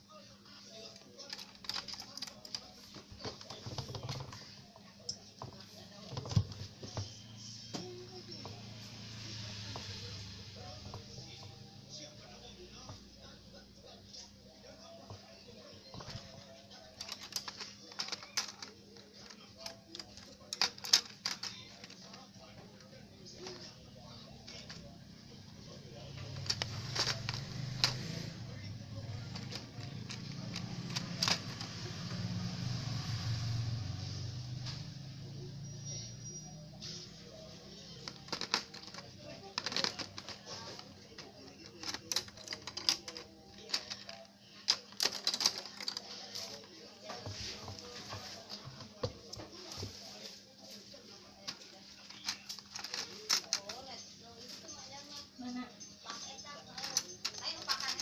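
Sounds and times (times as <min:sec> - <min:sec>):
hard plastic pieces clicking: 0:00.8 - 0:04.4, 0:15.9 - 0:22.3, 0:24.4 - 0:24.9, 0:26.2 - 0:28.3, 0:28.9 - 0:31.9, 0:37.8 - 0:46.6, 0:51.5 - 0:53.9, 0:56.7 - 0:58.0.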